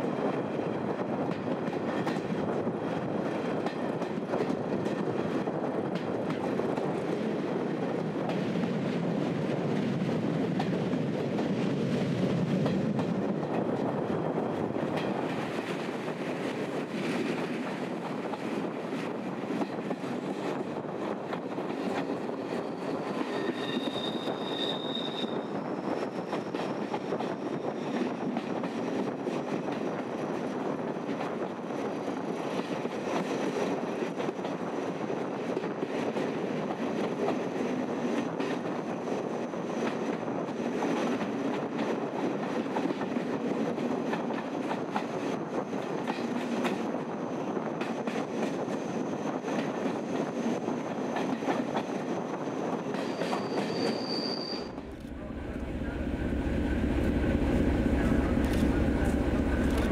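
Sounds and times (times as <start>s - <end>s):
train wheels rumbling on rail: 0.0s - 59.9s
high wheel squeal: 22.7s - 26.9s, 52.9s - 54.9s.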